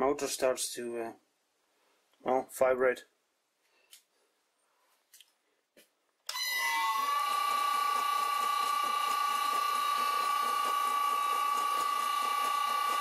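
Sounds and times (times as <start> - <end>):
lathe motor whining: 6.3 - 13.0.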